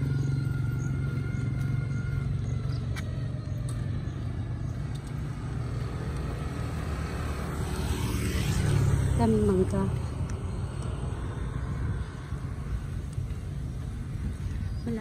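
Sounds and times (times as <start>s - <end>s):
motorcycle engine: 0.0s - 15.0s
rumble of road vehicles: 0.0s - 15.0s.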